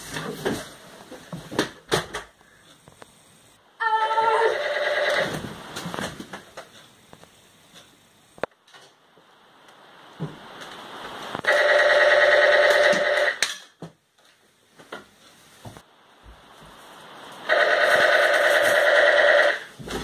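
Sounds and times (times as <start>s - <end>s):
telephone ringing: 3.8s - 5.4s, 11.5s - 13.4s, 17.5s - 19.7s.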